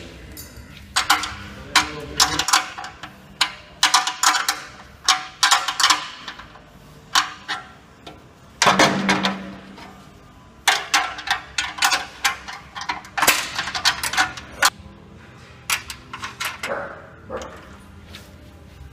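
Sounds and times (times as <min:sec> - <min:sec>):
spanner clicking on metal: 0:00.4 - 0:08.2, 0:10.6 - 0:14.8, 0:15.7 - 0:16.8.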